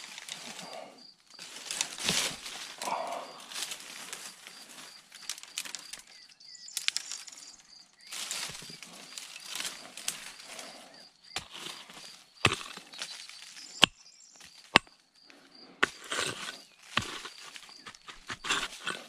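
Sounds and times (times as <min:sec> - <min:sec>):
brush and twigs rustling: 0:00.0 - 0:19.0
hand pick striking ground: 0:11.4 - 0:15.0, 0:15.8 - 0:19.0.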